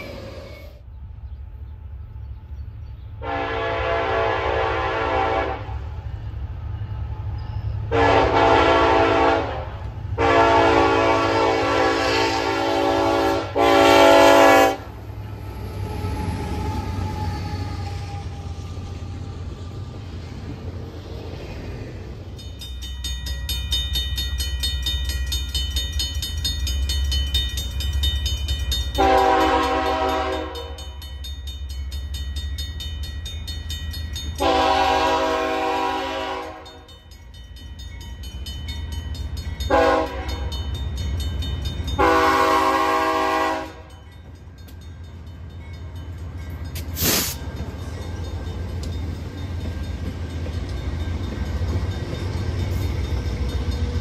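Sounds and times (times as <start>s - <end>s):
passing train rumble: 0.0s - 54.0s
locomotive horn blasts: 3.2s - 5.9s, 7.9s - 15.0s, 29.0s - 30.9s, 34.4s - 36.9s, 39.7s - 40.6s, 42.0s - 44.0s
crossing bell ringing: 6.0s - 9.6s, 22.2s - 54.0s.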